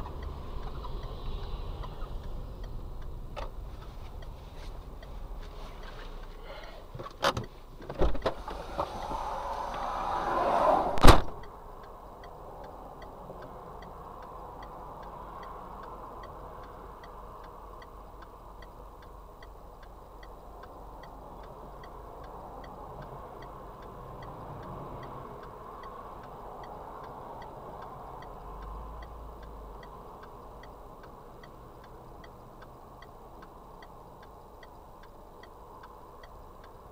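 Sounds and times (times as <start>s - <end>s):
indicator relay ticking: 0.0s - 5.2s, 11.3s - 36.9s
rushing noise: 8.3s - 11.4s.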